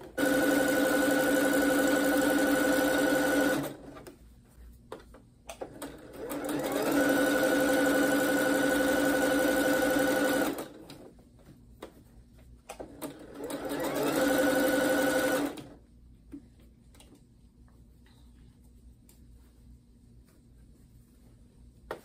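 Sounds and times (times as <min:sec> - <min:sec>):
sewing machine stitching: 0:00.0 - 0:04.0, 0:05.6 - 0:10.8, 0:12.8 - 0:15.8.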